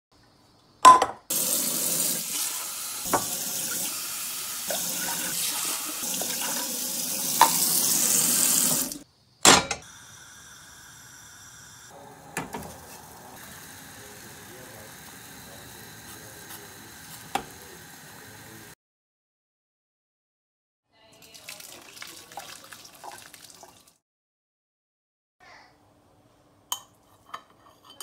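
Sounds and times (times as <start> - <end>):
tap water running into cup: 1.3 - 9.0, 12.0 - 18.7, 21.2 - 23.9.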